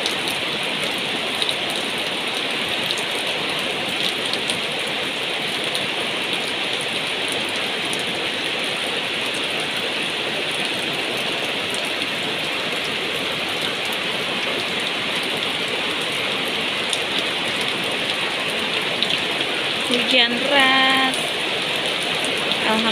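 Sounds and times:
heavy rain on a roof: 0.0s - 22.9s
rain on leaves and plastic: 0.0s - 22.9s
rain splashing into water: 0.0s - 22.9s.

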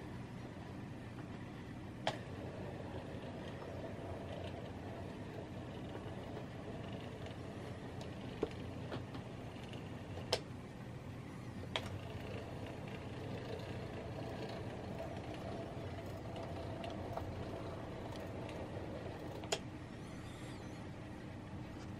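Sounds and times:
model train motor hum: 2.1s - 10.3s, 11.7s - 20.8s
wheels rumbling on rails: 12.0s - 19.5s.

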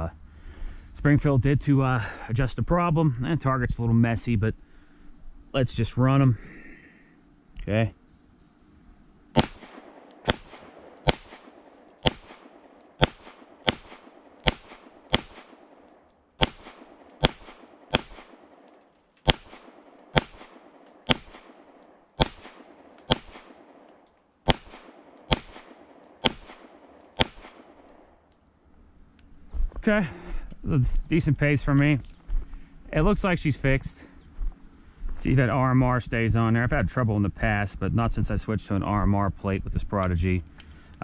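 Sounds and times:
pistol shots with echo: 9.4s - 28.1s.

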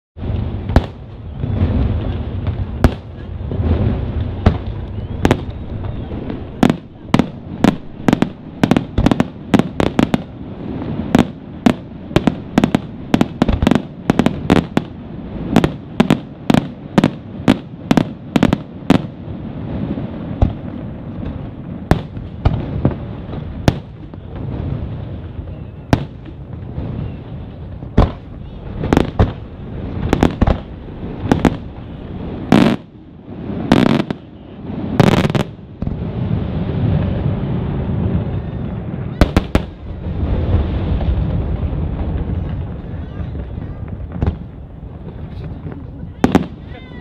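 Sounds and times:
fireworks bursting with sharp bangs: 0.2s - 47.0s.

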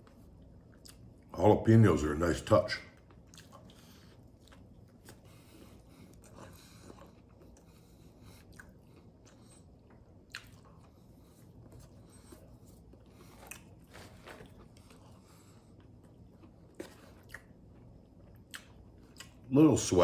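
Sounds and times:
person biting and chewing: 8.4s - 15.0s, 15.7s - 19.4s.

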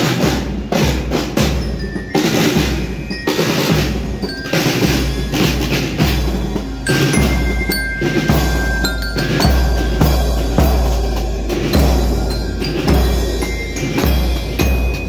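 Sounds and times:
snare drums rolling: 0.0s - 15.0s
bell-lyre notes: 0.5s - 15.0s
bass drum beat: 3.7s - 15.0s.

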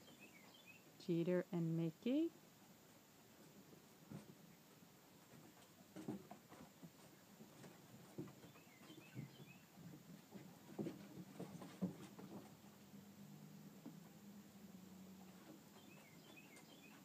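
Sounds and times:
puppies scuffling on wooden boards: 3.4s - 14.4s, 15.0s - 17.0s.

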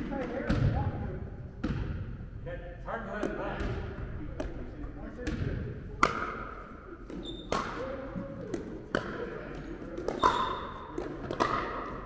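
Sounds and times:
paddles striking pickleball: 6.0s - 12.0s.

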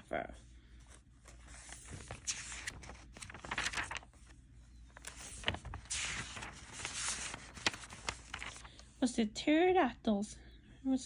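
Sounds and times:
paper pages rustling: 0.8s - 8.9s
sharp paper ticks: 2.0s - 4.0s, 5.0s - 8.7s.

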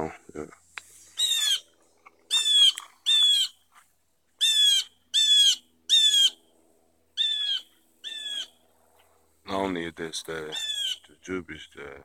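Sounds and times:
bird calling loudly: 1.1s - 3.6s, 4.4s - 6.5s, 7.2s - 8.6s, 10.5s - 11.2s.

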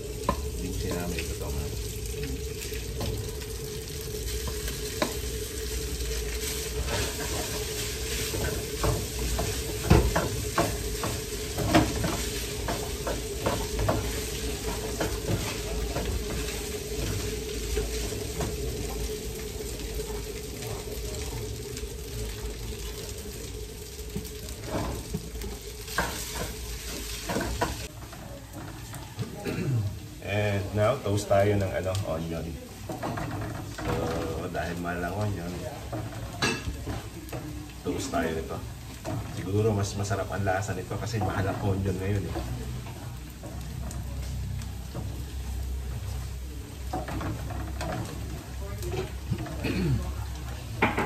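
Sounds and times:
rice sizzling in a pan: 0.0s - 51.0s
spatula knocking and scraping pan: 6.4s - 19.0s, 25.8s - 29.3s.

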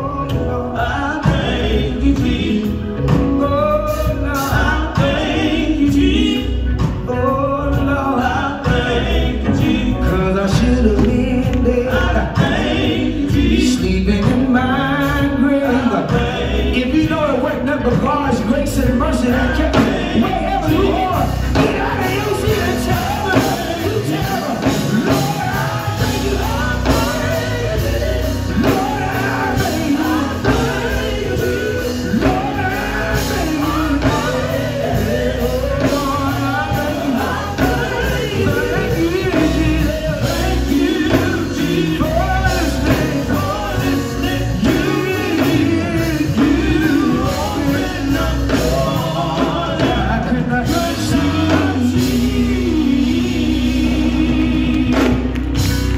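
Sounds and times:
band with drums and guitar: 0.0s - 55.9s
men singing gospel: 0.0s - 55.9s.

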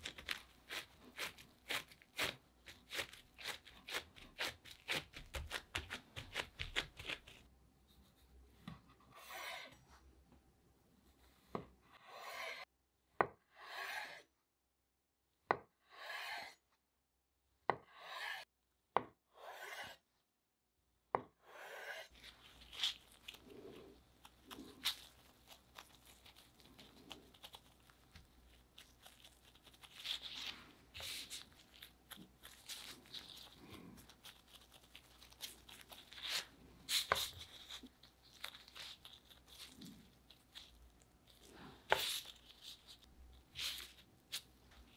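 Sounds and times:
knife slicing dough: 0.0s - 7.4s, 11.1s - 14.3s, 15.5s - 16.6s, 17.7s - 20.1s, 21.2s - 40.7s, 41.3s - 44.9s
gloved hands patting dough: 0.0s - 7.5s.

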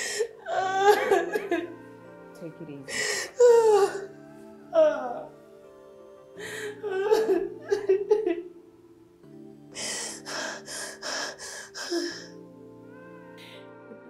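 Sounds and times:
woman sobbing and wailing: 0.0s - 1.9s, 2.5s - 5.4s, 6.4s - 8.6s, 9.7s - 12.4s
soft sad background music: 0.0s - 14.0s.

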